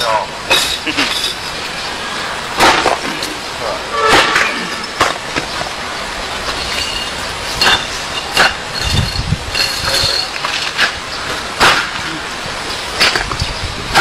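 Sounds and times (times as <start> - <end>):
steady background noise: 0.0 - 14.0
hand striking bricks: 7.6 - 12.2, 12.9 - 14.0.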